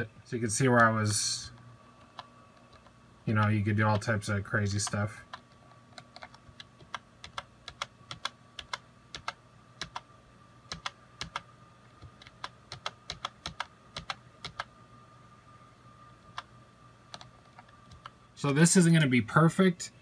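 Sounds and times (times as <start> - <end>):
faint electrical hum: 0.0 - 20.0
computer keyboard and mouse clicking: 0.8 - 1.0, 2.0 - 2.9, 4.8 - 10.1, 10.7 - 14.7, 17.1 - 18.2.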